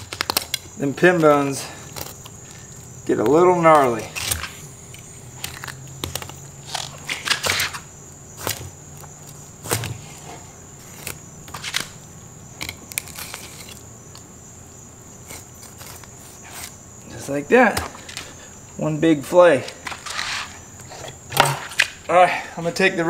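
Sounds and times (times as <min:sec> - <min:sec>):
knife crunching through fish bones: 0:04.1 - 0:07.8, 0:12.6 - 0:14.2.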